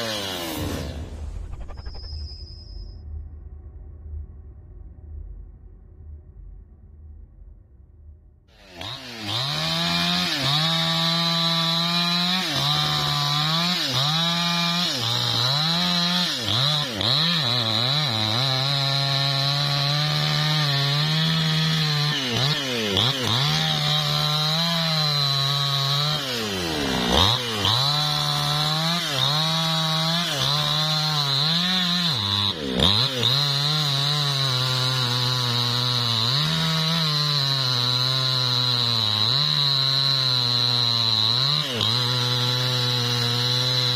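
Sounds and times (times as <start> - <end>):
chainsaw cutting wood: 0.0 - 1.6, 8.5 - 43.9.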